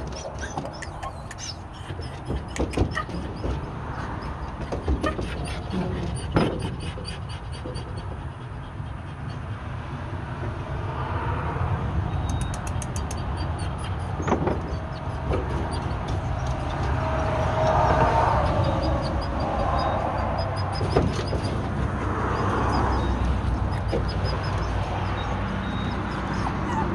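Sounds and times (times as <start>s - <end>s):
wire dog crate rattling: 0.0s - 8.0s.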